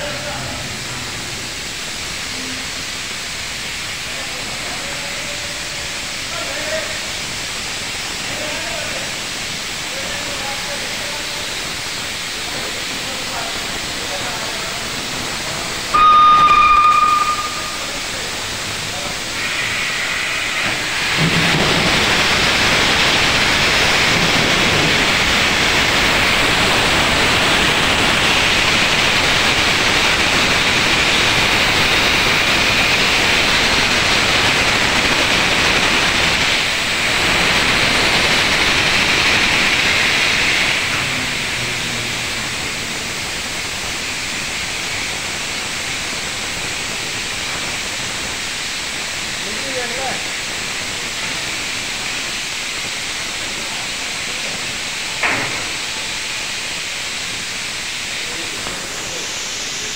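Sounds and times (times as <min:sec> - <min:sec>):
steam hissing: 0:00.0 - 0:59.9
steam locomotive whistle: 0:15.9 - 0:18.4.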